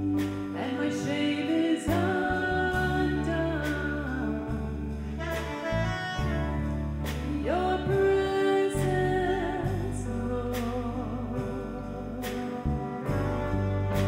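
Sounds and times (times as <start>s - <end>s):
hymn singing with instruments: 0.0s - 5.2s
sustained low bass notes: 0.0s - 14.0s.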